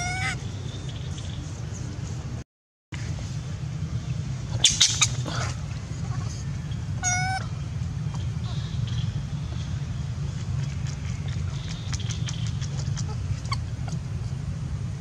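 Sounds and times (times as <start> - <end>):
baby monkey squealing cries: 0.0 - 0.4, 7.0 - 7.5, 12.7 - 14.0
steady low rumble: 0.0 - 2.4, 3.0 - 15.0.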